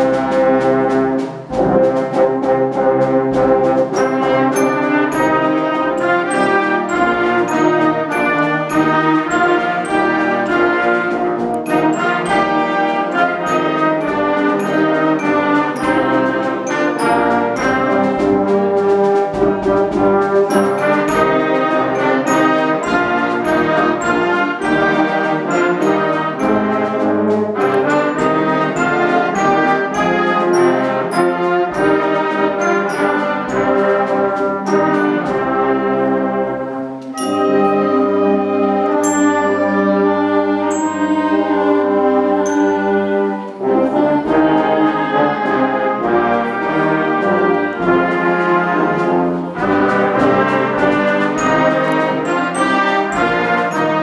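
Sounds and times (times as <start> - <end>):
concert band playing: 0.0 - 54.0
xylophone mallet percussion: 20.5 - 24.2, 27.6 - 34.0, 37.1 - 43.7, 51.4 - 54.0.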